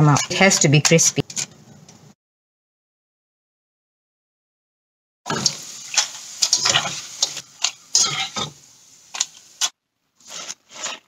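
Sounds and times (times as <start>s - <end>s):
food sizzling in hot oil: 5.3s - 11.0s
metal utensils clinking against wok: 6.0s - 8.6s.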